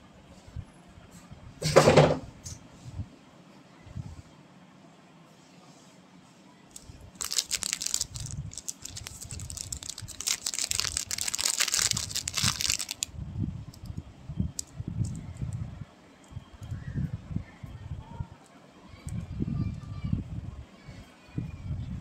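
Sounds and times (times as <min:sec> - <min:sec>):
plastic packet crinkling: 0:06.7 - 0:13.1.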